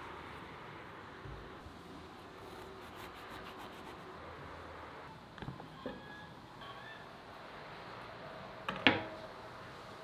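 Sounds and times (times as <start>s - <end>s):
faint room noise: 0.0s - 10.0s.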